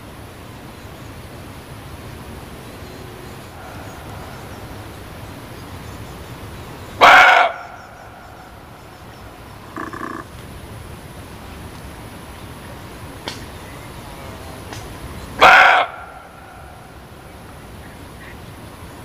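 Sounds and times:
steady hiss: 0.0s - 19.0s
muntjac barking: 2.9s - 10.4s, 15.2s - 18.4s.

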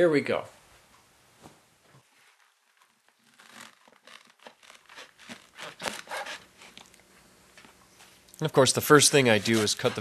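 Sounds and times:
knife slicing on wooden board: 3.5s - 6.5s.

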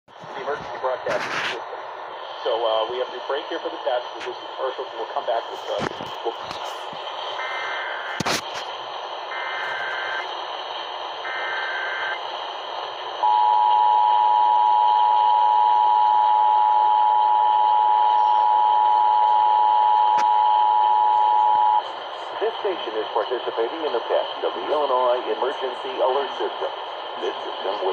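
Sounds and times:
radio static hiss: 0.1s - 13.4s, 20.2s - 27.9s
screeching data bursts: 7.3s - 8.2s, 9.3s - 10.3s, 11.3s - 12.2s.

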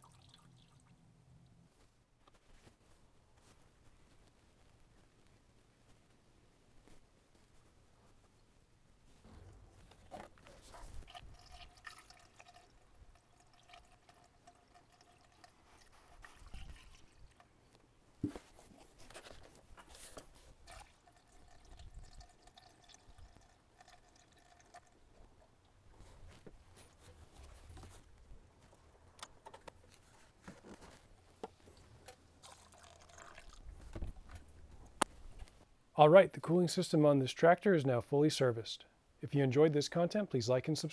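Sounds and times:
liquid trickling through funnel: 0.0s - 1.0s, 10.4s - 17.6s, 20.5s - 25.8s, 32.4s - 33.9s.

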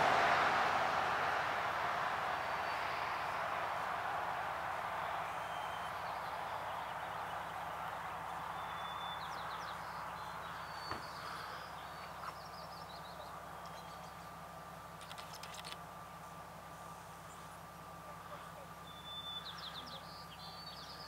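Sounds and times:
steady rushing noise: 0.0s - 11.4s
faint high bird chirps: 5.0s - 14.4s, 17.2s - 21.0s.

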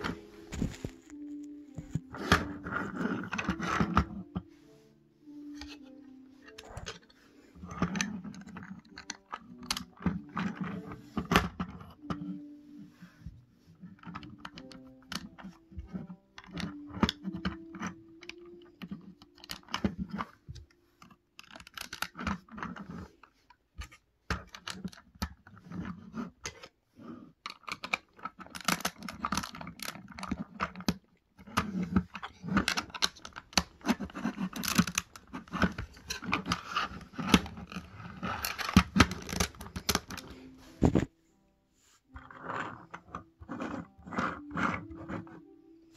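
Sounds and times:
plastic bricks clicking: 7.7s - 12.1s, 13.9s - 20.3s, 21.0s - 26.7s, 27.4s - 41.0s.

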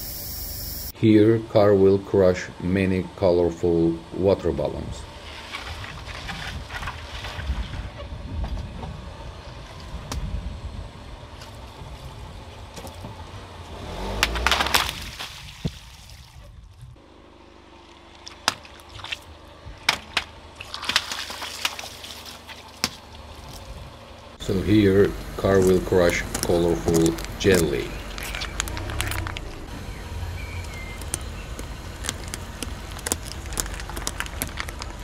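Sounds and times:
pops with water splashes: 18.1s - 23.6s.

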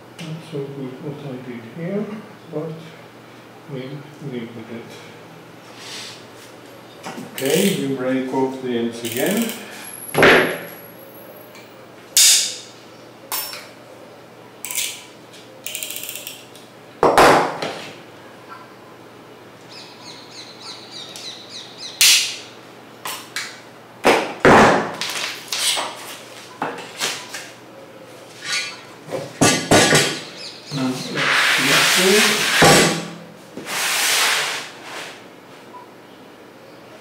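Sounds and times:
metal strips snapping: 12.2s - 12.7s, 14.7s - 15.1s, 22.0s - 22.4s.

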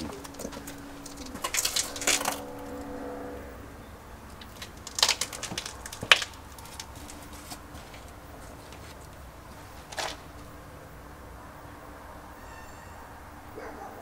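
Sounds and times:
faint steady background noise: 0.0s - 14.0s
sharp clicks and knocks: 4.3s - 9.2s.

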